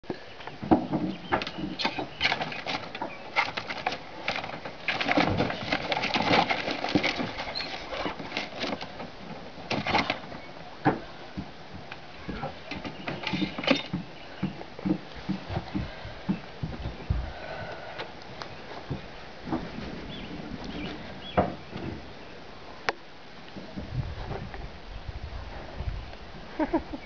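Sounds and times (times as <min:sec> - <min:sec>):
bedding rustling: 0:02.2 - 0:10.3.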